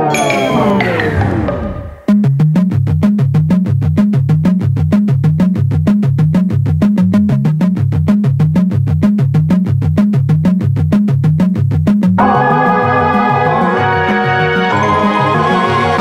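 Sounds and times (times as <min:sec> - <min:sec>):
electronic music: 0:00.0 - 0:02.2, 0:12.2 - 0:16.0
pulsing synth bass line: 0:00.0 - 0:02.2.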